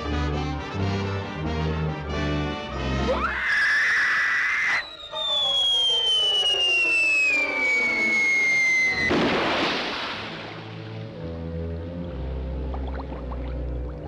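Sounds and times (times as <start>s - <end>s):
shrill rising tone: 3.1s - 9.1s
descending cartoon whistle: 3.1s - 9.2s
big water splash: 8.8s - 11.1s.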